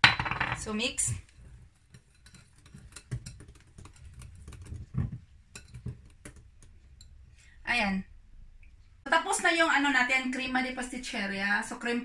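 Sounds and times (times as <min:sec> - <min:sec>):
whisk clicking against glass bowl: 0:01.8 - 0:07.1.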